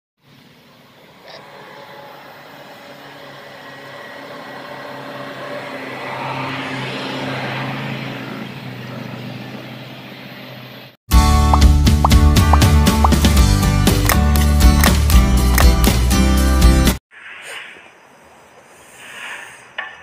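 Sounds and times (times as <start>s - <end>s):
small engine humming: 0.2s - 10.9s.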